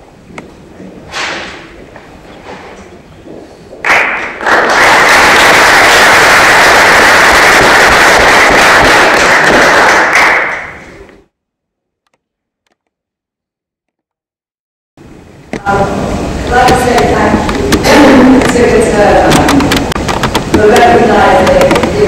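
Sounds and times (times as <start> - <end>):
audience applauding: 3.8 - 11.1.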